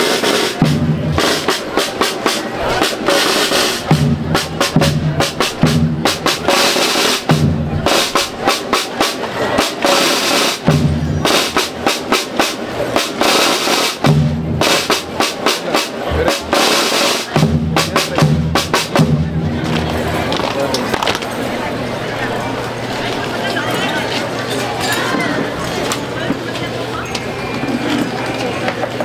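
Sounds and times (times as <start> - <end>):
rapid snare drum strokes: 0.0 - 21.2
bass drum beats: 0.6 - 9.0.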